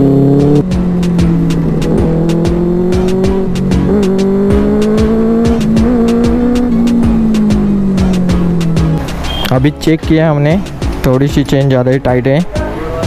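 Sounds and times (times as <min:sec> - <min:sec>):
motorcycle engine accelerating: 0:00.0 - 0:09.2.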